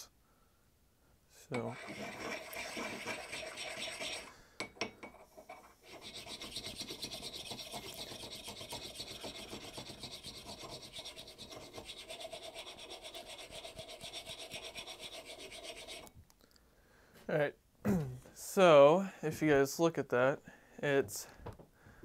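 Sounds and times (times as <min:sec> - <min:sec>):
sharpening stone scraping axe head: 0:05.5 - 0:16.1.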